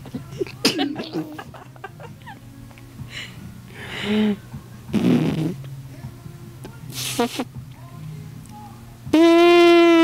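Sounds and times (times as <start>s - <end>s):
baby blowing raspberries: 4.0s - 5.6s, 6.9s - 7.5s, 9.1s - 10.0s.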